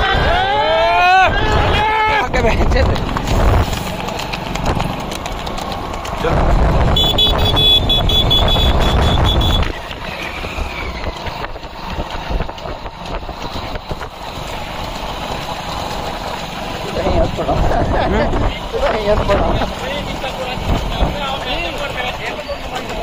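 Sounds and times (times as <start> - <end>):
motorcycle running: 0.0 - 23.0
wind rumble on microphone: 6.1 - 14.2.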